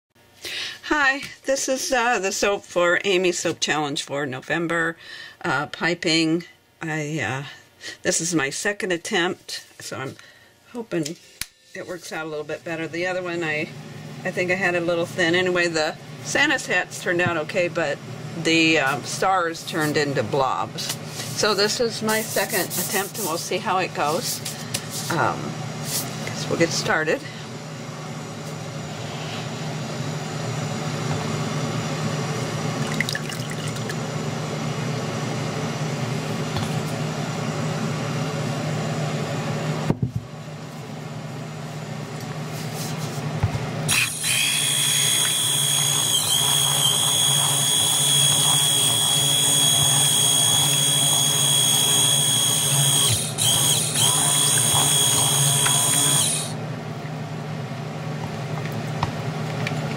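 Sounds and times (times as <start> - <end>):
high-pitched blender motor whine: 43.9 - 56.6.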